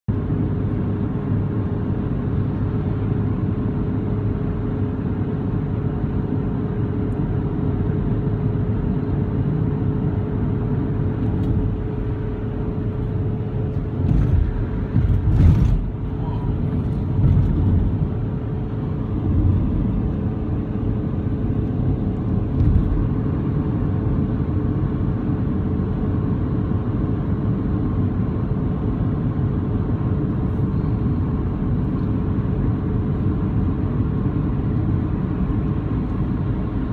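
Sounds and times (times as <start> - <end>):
car cabin road and engine rumble: 0.1 - 36.9
car bumps: 13.8 - 18.2.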